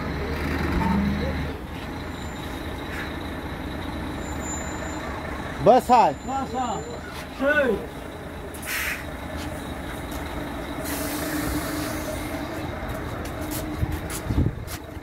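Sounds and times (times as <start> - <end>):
diesel engine idling: 0.0 - 15.0
air hiss: 8.6 - 9.0.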